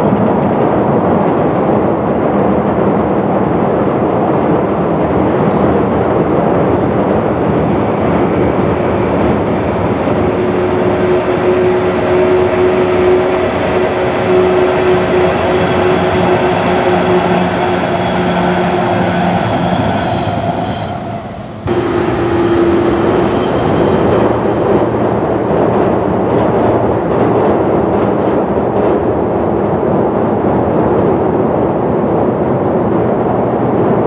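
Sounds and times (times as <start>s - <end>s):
train rumbling over steel bridge: 0.0s - 34.0s
humming tone: 9.2s - 26.1s.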